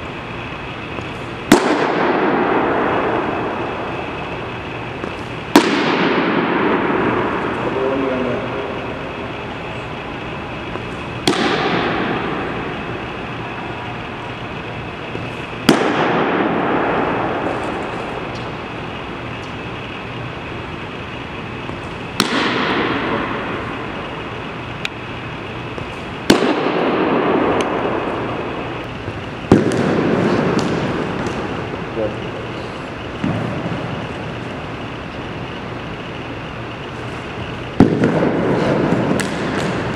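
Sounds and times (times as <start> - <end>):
baseball popping into mitt: 37.8 - 39.8.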